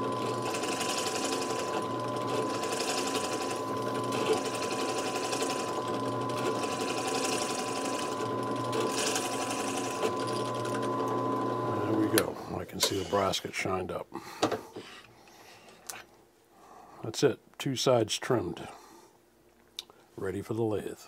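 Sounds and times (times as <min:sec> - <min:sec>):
drill press motor whine: 0:00.0 - 0:12.3.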